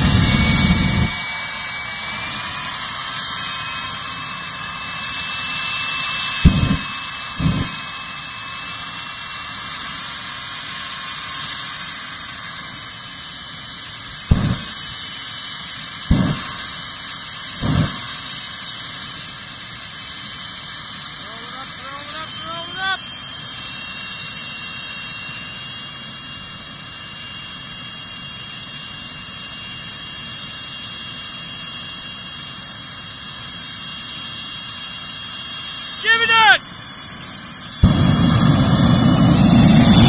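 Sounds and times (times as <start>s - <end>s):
turbine engine whining: 0.0s - 40.0s
short deep booms: 6.5s - 7.9s, 14.3s - 14.8s, 16.1s - 16.6s, 17.6s - 18.1s.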